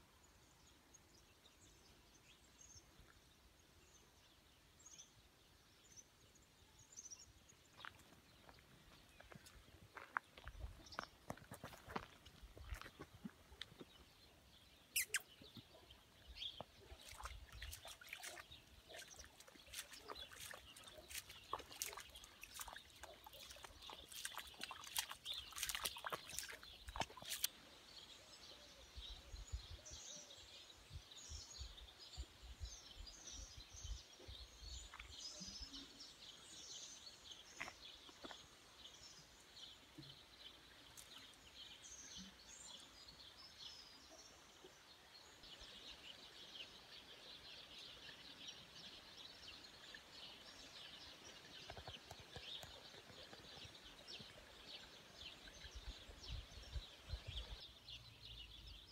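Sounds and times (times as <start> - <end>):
small birds chirping: 0.5 - 58.9
footsteps wading through water: 7.6 - 27.7, 40.8 - 42.0, 45.6 - 57.7.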